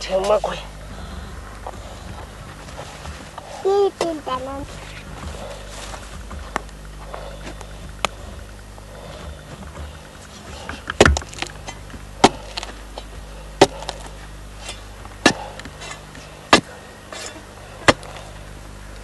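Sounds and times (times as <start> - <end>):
soil crumbling clicks: 9.3 - 14.2
digging bar striking hard earth: 9.3 - 18.2.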